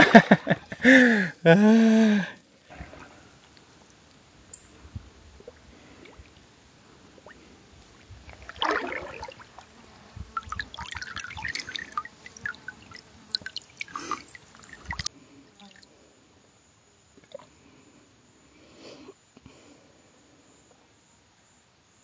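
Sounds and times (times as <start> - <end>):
water splashing and dripping: 7.1 - 9.7, 10.3 - 15.1.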